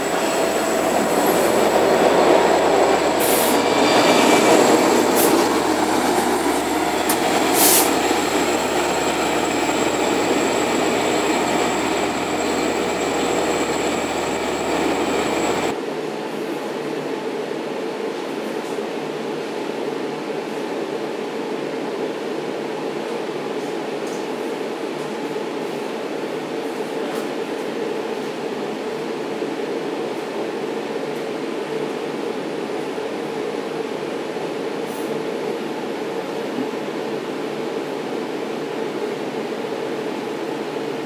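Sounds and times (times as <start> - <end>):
train wheels squealing on rails: 0.0 - 15.7
diesel locomotive running: 0.0 - 15.8
steady hum inside train coach: 0.0 - 41.0.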